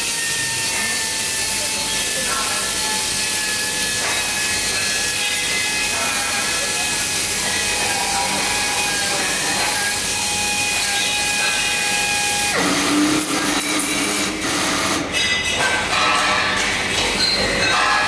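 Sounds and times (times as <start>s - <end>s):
machine whine and hiss: 0.0s - 15.1s.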